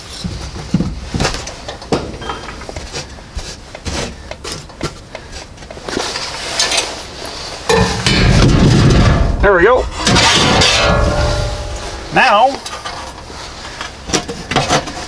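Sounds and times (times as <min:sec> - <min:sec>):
wood knocking and scraping: 0:00.2 - 0:06.1.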